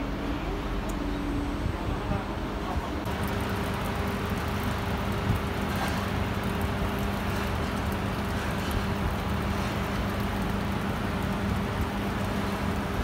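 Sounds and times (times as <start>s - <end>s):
constant hum: 0.0s - 13.0s
steam locomotive rumble and hiss: 0.0s - 13.0s.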